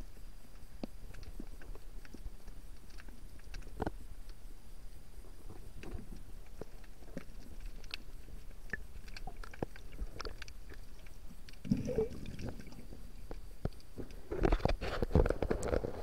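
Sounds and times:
underwater clicks and crackles: 0:00.0 - 0:16.0
water sloshing and splashing: 0:05.8 - 0:16.0
bubbles gurgling: 0:11.6 - 0:13.0.

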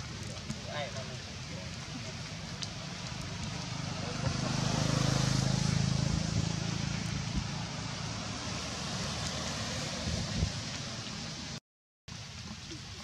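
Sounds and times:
steady outdoor hiss: 0:00.0 - 0:13.0
motor vehicle passing: 0:02.2 - 0:11.6.

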